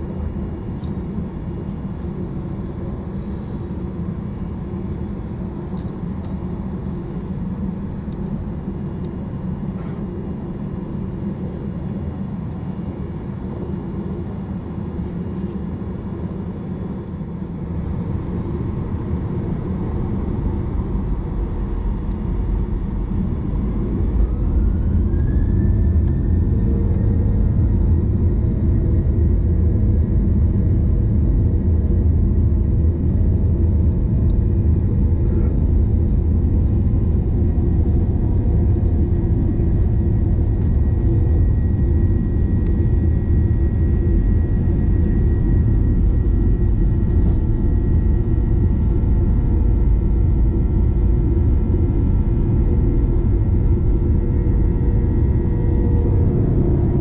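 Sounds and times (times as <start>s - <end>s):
jet engines spooling up: 17.8s - 57.0s.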